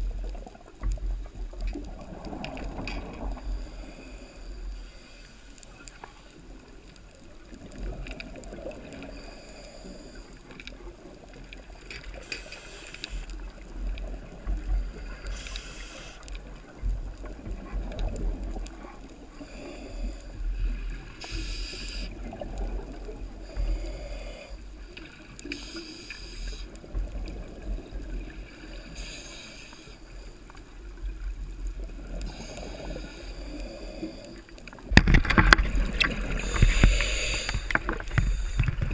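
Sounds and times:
underwater rumble of moving water: 0:00.0 - 0:38.9
brief underwater hiss: 0:12.2 - 0:13.2, 0:15.0 - 0:16.3, 0:21.2 - 0:22.2, 0:25.4 - 0:26.7, 0:28.7 - 0:30.0, 0:35.6 - 0:38.6.

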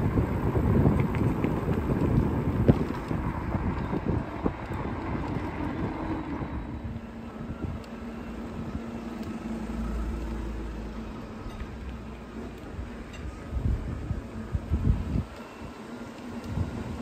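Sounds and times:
wind on microphone: 0:00.0 - 0:07.8, 0:12.7 - 0:15.7, 0:16.4 - 0:17.0
bicycle road noise: 0:00.0 - 0:17.0
car engine humming: 0:00.0 - 0:17.0.

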